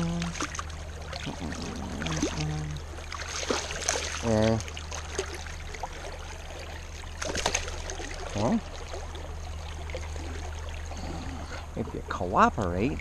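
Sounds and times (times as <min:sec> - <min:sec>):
sharp splashes or knocks: 0:00.0 - 0:06.0, 0:07.1 - 0:09.1.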